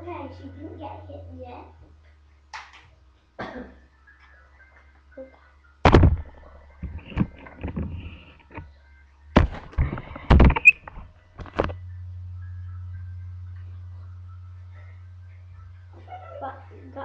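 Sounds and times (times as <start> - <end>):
low hum: 0.0 - 17.0
brief squeak: 10.5 - 10.8.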